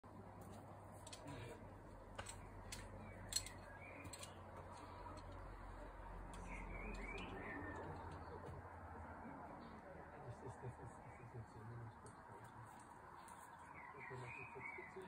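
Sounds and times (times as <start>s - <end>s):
climbing gear clicks and taps: 0.4s - 1.3s, 2.1s - 5.4s
bird chirping: 2.3s - 5.2s, 5.8s - 8.6s, 11.1s - 15.0s.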